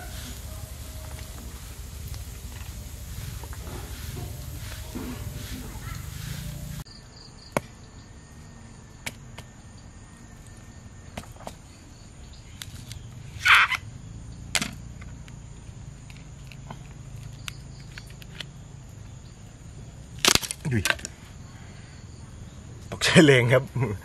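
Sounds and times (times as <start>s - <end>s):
machete cracking bamboo: 20.2s - 21.1s.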